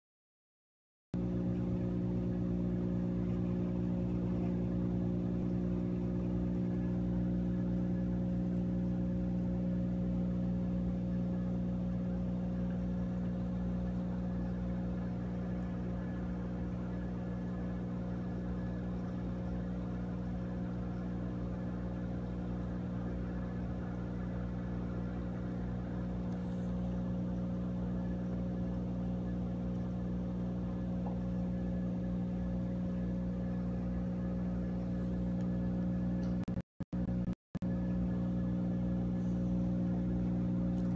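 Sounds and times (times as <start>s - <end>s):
aquarium equipment humming: 1.2s - 40.9s.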